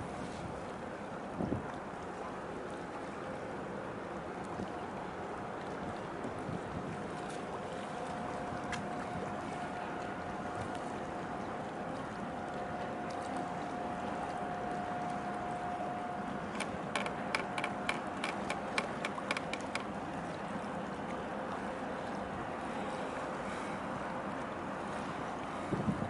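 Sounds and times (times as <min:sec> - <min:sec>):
faint steady hum: 0:00.0 - 0:26.0
harbour water: 0:00.0 - 0:26.0
wind: 0:00.0 - 0:26.0.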